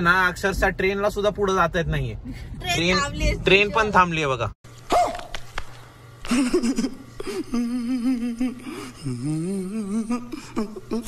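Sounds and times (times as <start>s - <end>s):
man's wavering wordless voice: 7.4s - 11.0s.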